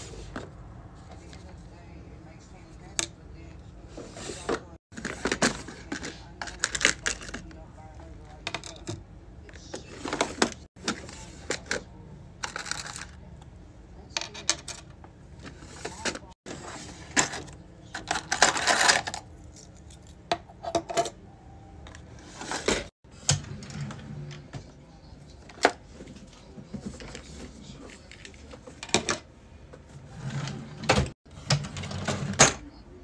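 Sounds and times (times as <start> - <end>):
plastic drawers being handled: 3.9 - 7.6, 8.4 - 11.9, 15.4 - 19.2, 21.9 - 24.7, 25.4 - 32.7.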